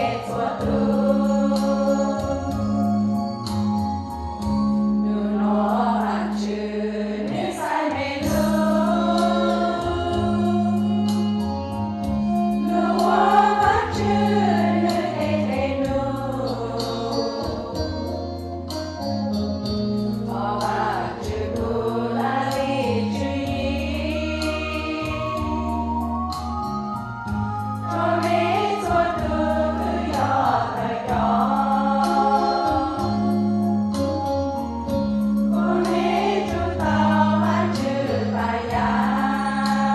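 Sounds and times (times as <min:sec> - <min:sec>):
women's choir singing a hymn: 0:00.0 - 0:03.1, 0:05.0 - 0:11.4, 0:12.3 - 0:18.4, 0:20.2 - 0:26.0, 0:27.8 - 0:33.6, 0:35.5 - 0:39.9.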